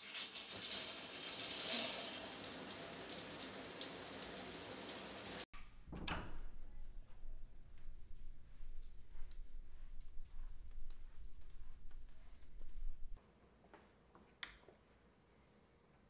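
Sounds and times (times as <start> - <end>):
shower spraying onto tile: 0.0 - 5.5.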